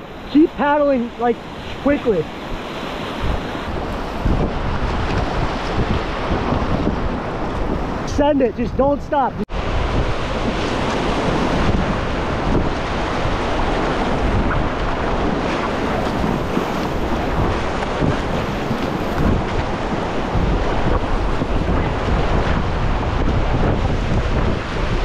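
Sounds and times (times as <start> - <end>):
whitewater rushing: 0.0 - 4.4
wind buffeting microphone: 0.0 - 25.0
paddle strokes splashing: 10.0 - 25.0.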